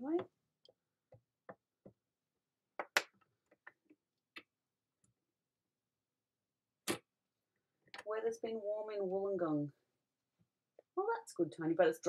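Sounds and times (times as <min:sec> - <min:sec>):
plastic tool clicks and taps: 0:02.8 - 0:04.5.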